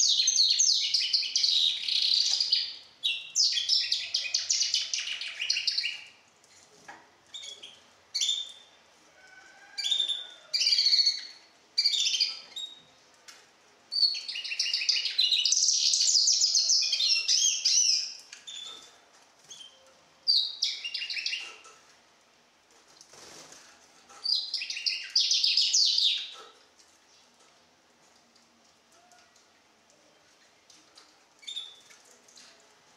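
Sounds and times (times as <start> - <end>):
bird singing trills and chirps: 0.0 - 6.2, 13.9 - 18.9, 19.5 - 21.6, 24.3 - 26.4.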